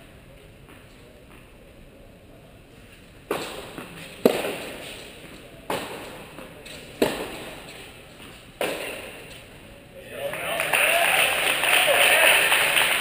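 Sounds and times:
tennis ball hit by racquet: 3.3s - 5.1s, 5.7s - 9.4s.

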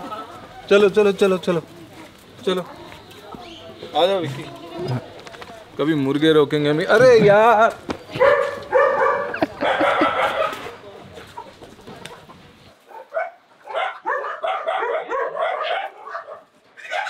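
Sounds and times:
chickens squawking in alarm: 13.6s - 17.0s.

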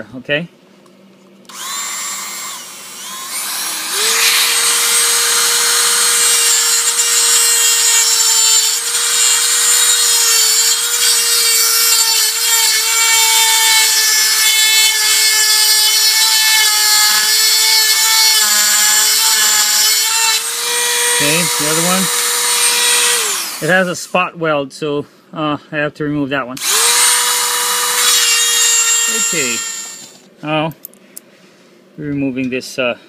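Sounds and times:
rotary tool grinding metal: 1.5s - 23.9s, 26.6s - 30.2s
high tool whine: 1.5s - 24.2s, 26.6s - 30.3s.

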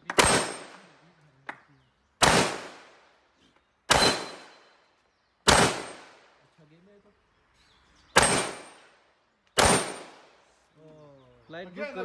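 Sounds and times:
rifle shots echoing: 0.0s - 1.0s, 2.2s - 3.2s, 3.9s - 4.8s, 5.4s - 6.4s, 8.2s - 9.0s, 9.6s - 10.4s.

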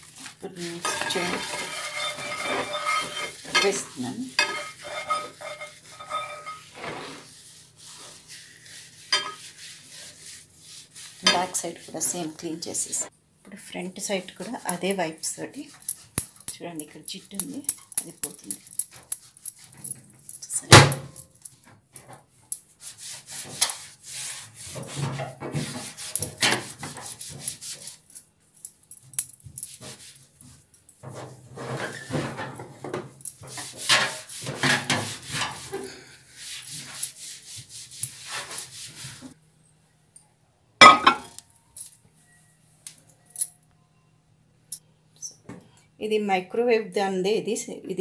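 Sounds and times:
wet wipe scrubbing: 0.0s - 12.6s, 22.7s - 28.2s, 33.4s - 39.4s.

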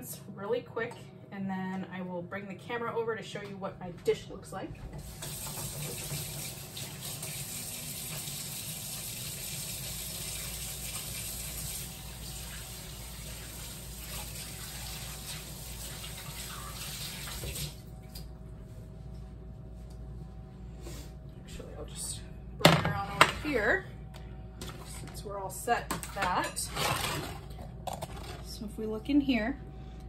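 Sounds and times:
faucet running over hands: 5.0s - 17.9s.

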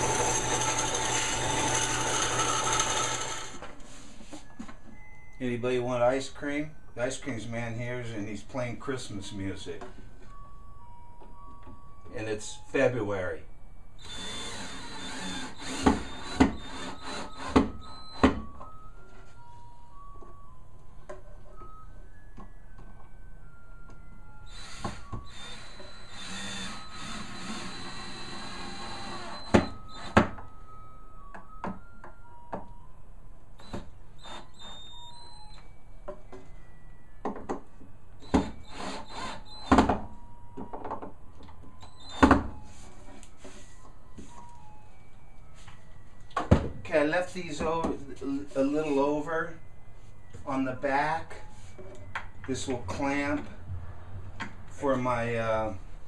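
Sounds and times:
cordless drill boring into wood: 0.0s - 3.6s, 14.0s - 17.6s, 24.5s - 30.2s, 38.2s - 39.8s
ice cream truck chiming tune: 0.0s - 56.0s.

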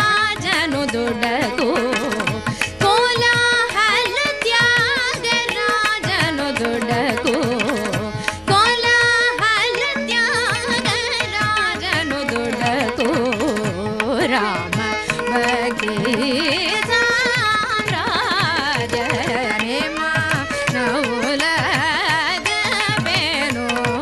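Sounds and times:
violin: 0.0s - 24.0s
woman singing ornamented melody: 6.2s - 14.7s, 15.3s - 24.0s.

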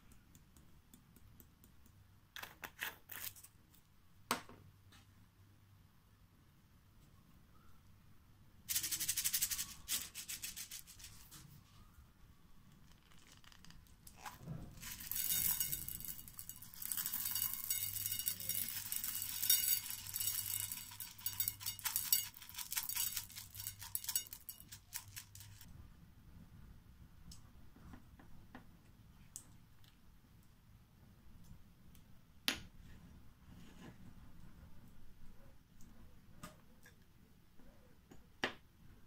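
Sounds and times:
beads rattling on glass: 8.7s - 11.3s, 12.9s - 25.7s.

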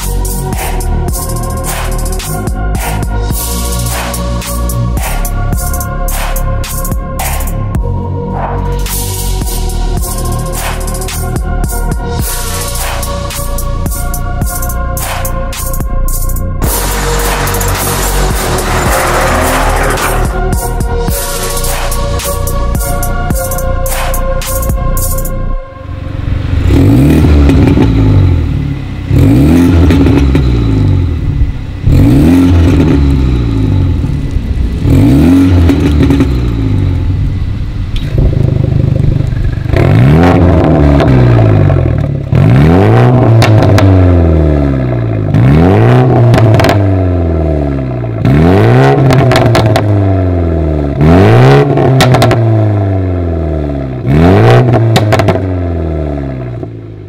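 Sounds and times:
car engine revving: 0.0s - 57.0s
exhaust crackles: 16.5s - 22.9s, 25.8s - 57.0s.

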